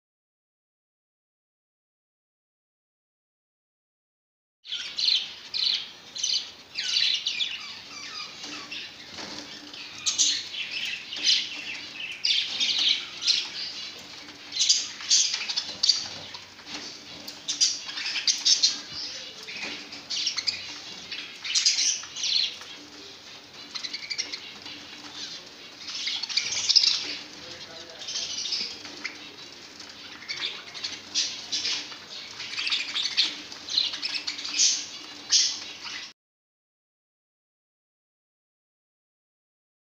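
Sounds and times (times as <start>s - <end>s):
budgerigars chirping and chattering: 4.7s - 36.1s
wings fluttering: 6.2s - 36.1s.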